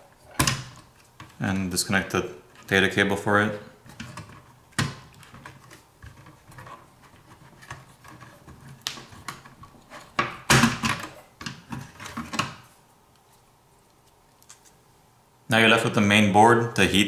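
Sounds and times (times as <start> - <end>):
plastic and metal parts handled: 3.8 - 14.8.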